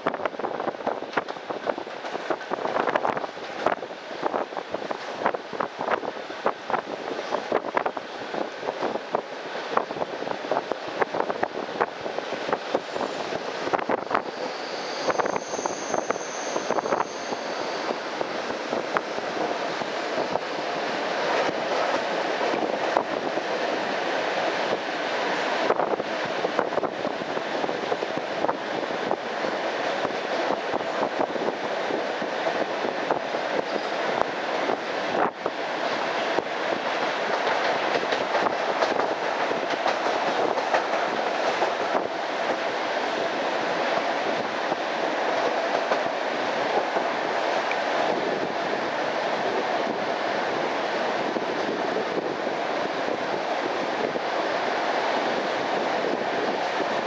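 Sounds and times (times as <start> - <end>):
train wheels rumbling on rails: 0.0 - 57.0
wheels clicking over rail joints: 37.0 - 42.6.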